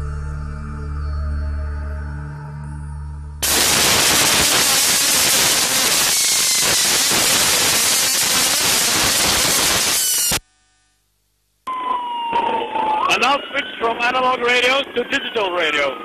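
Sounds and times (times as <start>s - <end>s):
radio static hiss: 3.4s - 11.6s, 13.0s - 16.0s.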